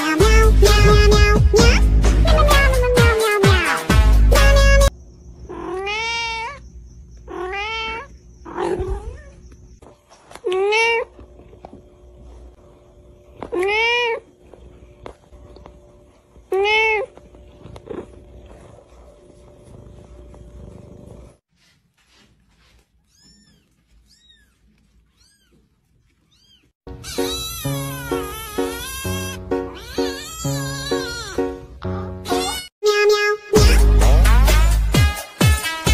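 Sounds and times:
loud music with steady beat: 0.2s - 4.4s, 33.6s - 35.9s
cat meowing: 5.5s - 6.6s, 7.3s - 9.4s, 10.4s - 11.1s, 13.5s - 14.3s, 16.5s - 17.1s, 23.0s - 31.4s
kitten mewing: 5.5s - 6.6s, 7.3s - 9.4s, 13.4s - 14.3s, 23.1s - 31.4s.

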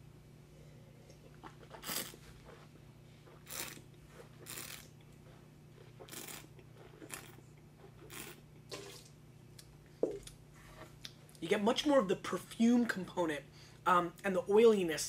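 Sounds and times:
faint steady hum: 0.0s - 15.0s
person slurping wine: 3.3s - 3.8s, 4.4s - 4.9s, 5.9s - 9.0s.

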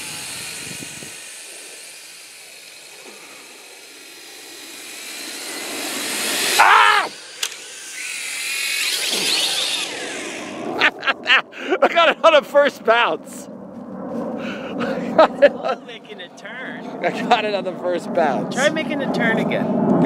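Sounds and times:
drone motors whining: 0.0s - 11.5s.

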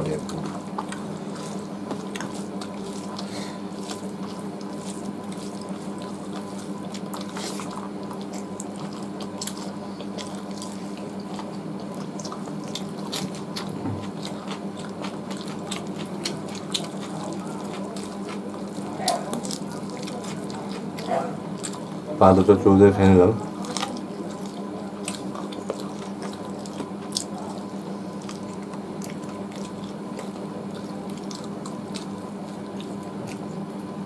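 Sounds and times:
steady low hum: 0.0s - 34.0s
wet chewing and lip-smacking: 0.0s - 34.0s
meat tearing clicks: 1.8s - 21.9s, 23.5s - 33.7s.

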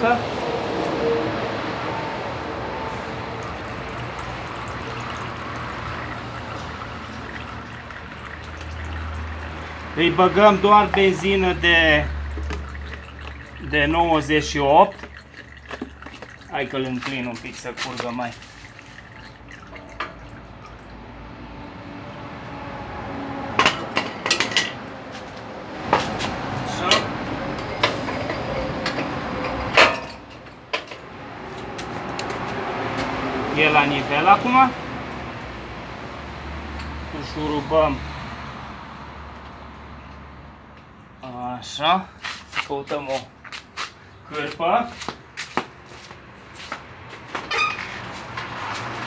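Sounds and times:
oil trickling into a bottle: 3.4s - 21.2s
metal clanks and knocks: 23.6s - 24.8s, 27.7s - 31.1s.

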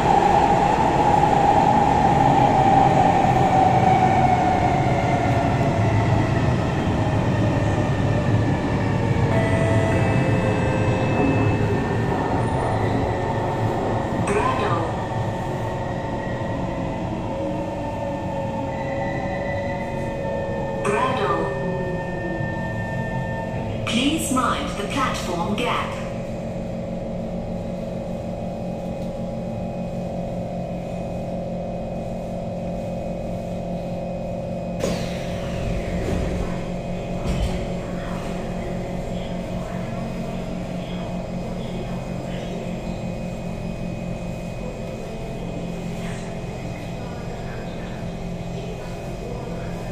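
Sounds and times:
metro car equipment hum: 0.0s - 49.9s
train wheels rumbling on rail: 19.6s - 49.9s.

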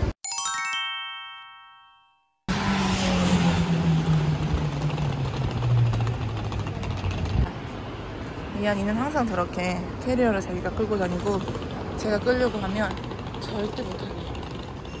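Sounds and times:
chime notes: 0.2s - 2.4s
vehicle engine drone: 2.5s - 8.0s.

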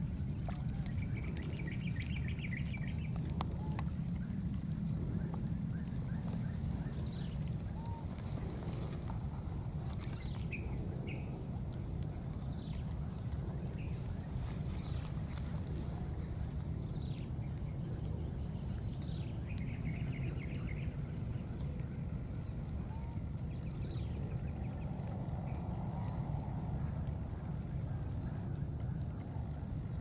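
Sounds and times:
steady low rumble: 0.0s - 30.0s.

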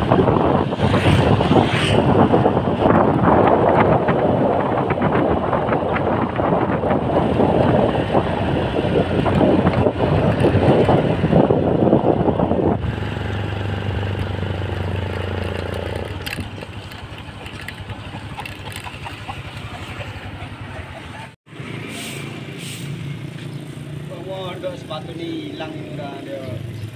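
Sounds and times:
wind buffeting microphone: 0.0s - 20.3s
scooter engine hum: 0.0s - 21.9s.

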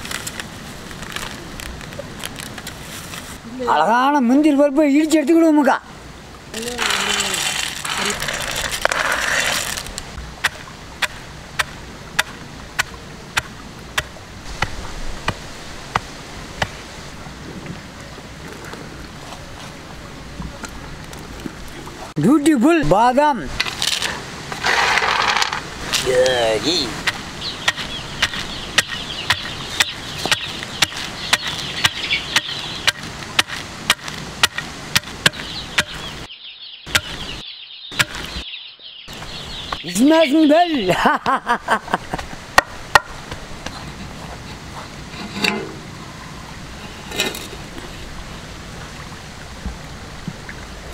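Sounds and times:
birds chirping: 24.7s - 48.5s
wooden pestle pounding in mortar: 27.0s - 36.0s, 36.9s - 37.2s, 38.0s - 38.3s.

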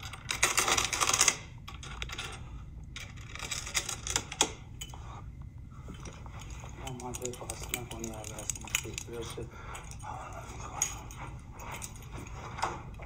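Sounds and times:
metal chains clinking: 5.9s - 13.0s.

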